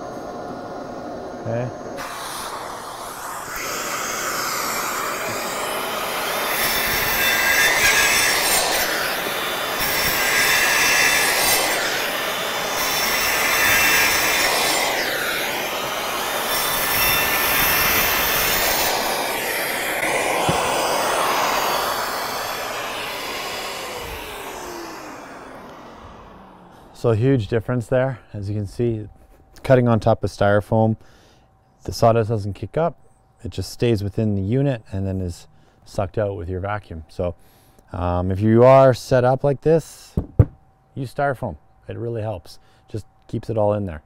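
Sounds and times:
circular saw cutting: 0:00.0 - 0:27.5
dust extractor rushing: 0:00.0 - 0:27.5.

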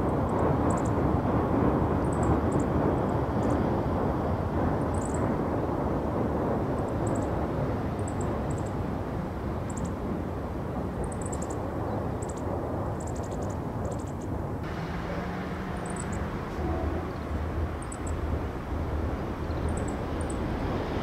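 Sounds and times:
deeper rumble: 0:14.6 - 0:21.0
low hum: 0:14.6 - 0:21.0
low rumble: 0:14.6 - 0:21.0.

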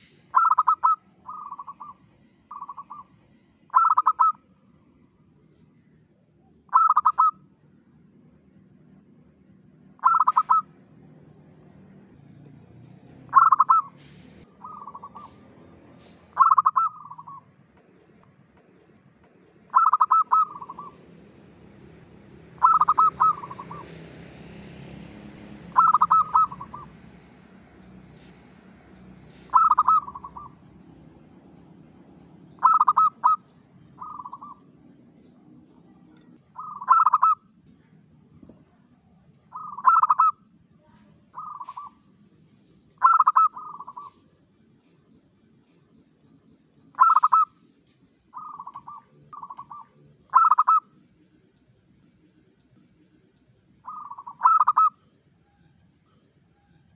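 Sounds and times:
dove cooing: 0:00.3 - 0:03.1, 0:03.7 - 0:04.4, 0:06.7 - 0:07.4, 0:10.0 - 0:10.8, 0:13.3 - 0:15.5, 0:16.3 - 0:17.4, 0:19.6 - 0:21.0, 0:22.5 - 0:24.0, 0:25.7 - 0:27.0, 0:29.4 - 0:30.6, 0:32.6 - 0:34.7, 0:36.5 - 0:37.5, 0:39.5 - 0:40.4, 0:41.3 - 0:42.0, 0:43.0 - 0:44.3, 0:47.0 - 0:47.6, 0:48.3 - 0:50.9, 0:53.8 - 0:55.1.

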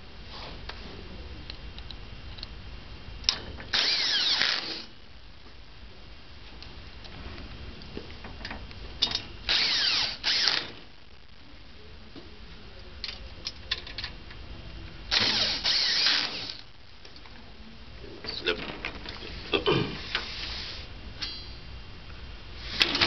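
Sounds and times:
cordless drill driving screws: 0:03.7 - 0:04.9, 0:09.5 - 0:10.7, 0:15.1 - 0:16.6.

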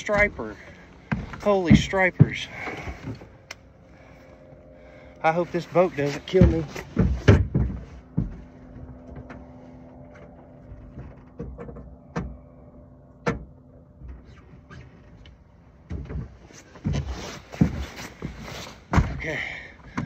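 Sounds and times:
motorboat engine hum: 0:00.0 - 0:20.0
sharp knocks and clicks: 0:06.3 - 0:09.4.

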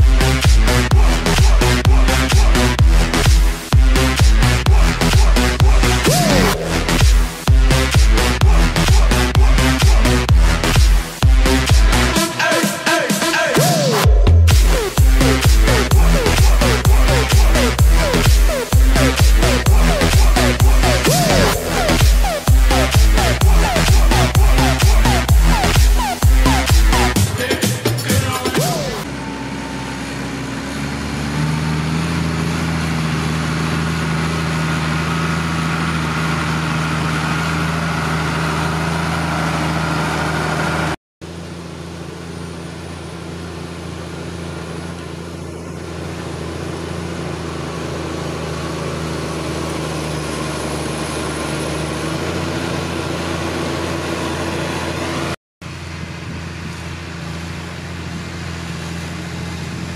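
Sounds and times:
tractor diesel engine under load: 0:00.0 - 0:59.9.

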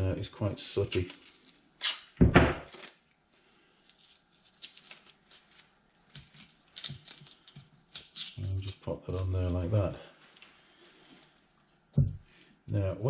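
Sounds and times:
masking tape rustling and crinkling: 0:00.6 - 0:11.6.

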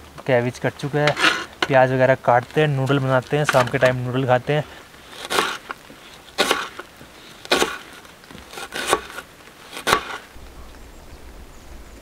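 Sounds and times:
knife slicing onion on cutting board: 0:05.2 - 0:05.7, 0:06.4 - 0:06.8, 0:07.5 - 0:07.9, 0:08.5 - 0:10.2.

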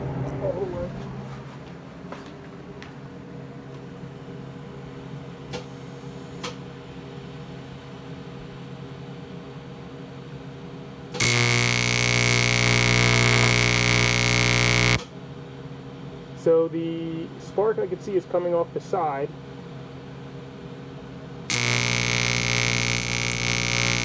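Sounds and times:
low electrical hum: 0:00.0 - 0:24.0
welding arc buzzing: 0:11.2 - 0:15.1, 0:21.5 - 0:24.0.

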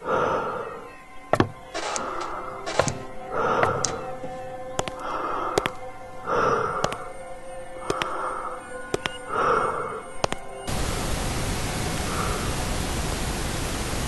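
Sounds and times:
electronic music with clicks: 0:01.4 - 0:05.0, 0:07.8 - 0:08.2, 0:08.9 - 0:09.3, 0:10.2 - 0:10.7
static hiss: 0:10.7 - 0:14.0.

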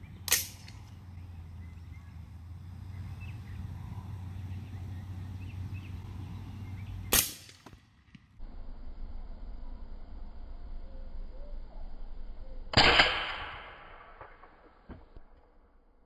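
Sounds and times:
steady low hum: 0:00.0 - 0:16.0
rifle shot: 0:00.3 - 0:00.7, 0:07.1 - 0:07.7, 0:12.7 - 0:14.6.

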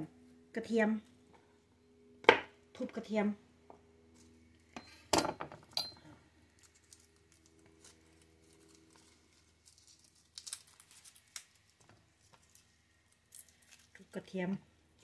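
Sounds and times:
faint low hum: 0:00.0 - 0:15.0
garlic skins crinkling: 0:06.4 - 0:14.3.

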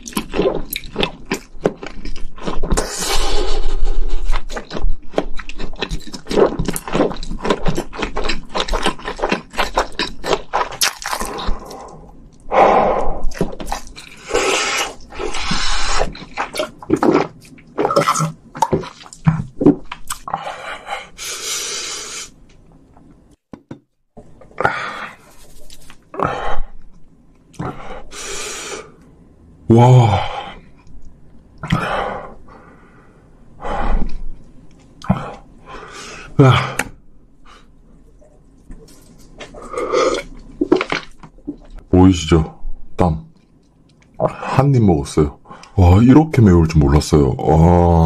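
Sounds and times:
wet chewing and lip smacking: 0:04.2 - 0:12.4.

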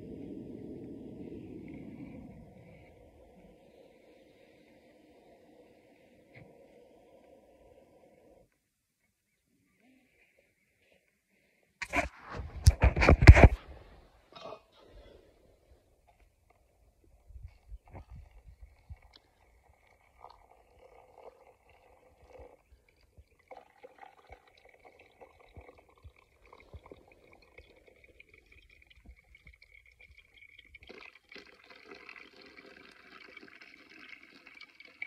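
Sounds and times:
water trickling onto coffee: 0:17.8 - 0:35.0.

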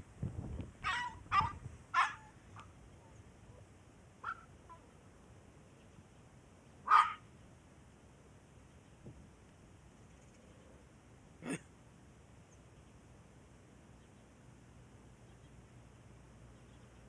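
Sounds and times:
puppy yapping: 0:00.8 - 0:02.3, 0:06.9 - 0:07.2.

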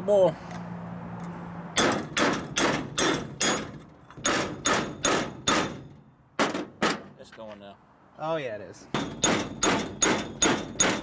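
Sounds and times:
hammer striking metal: 0:01.8 - 0:07.1, 0:08.9 - 0:11.0.

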